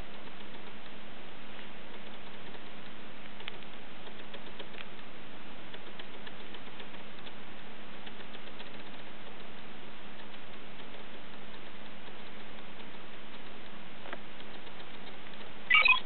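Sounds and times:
low hum: 0:00.0 - 0:16.0
fingers tapping touchscreen: 0:08.0 - 0:16.0.

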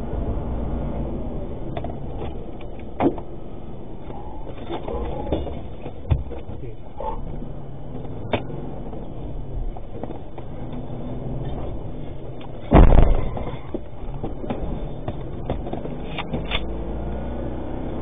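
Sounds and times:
engine and road rumble: 0:00.0 - 0:18.0
loud sharp bang: 0:12.7 - 0:13.5.

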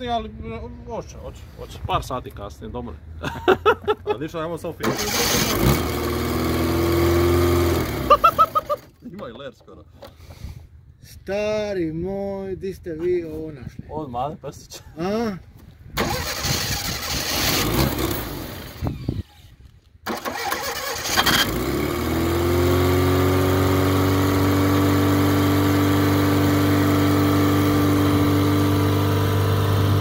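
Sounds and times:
car engine cranking and idling: 0:04.8 - 0:08.8, 0:16.0 - 0:30.0.

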